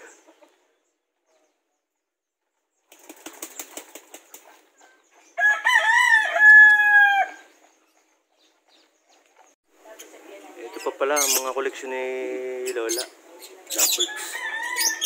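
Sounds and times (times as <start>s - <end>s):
wings flapping: 2.8s - 4.7s
rooster crowing: 5.4s - 7.5s, 14.0s - 15.0s.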